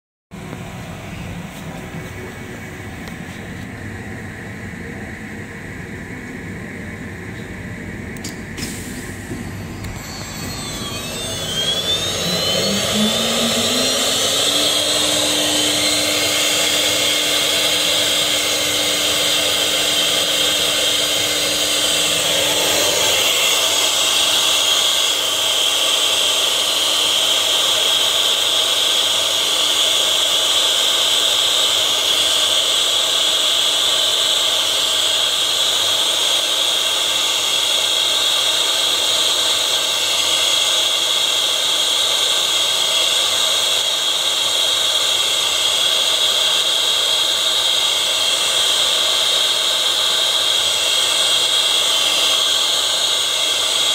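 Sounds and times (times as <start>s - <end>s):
wood router spindle whine: 8.0s - 53.9s
click: 8.2s - 8.8s
router bit cutting board: 8.6s - 53.9s.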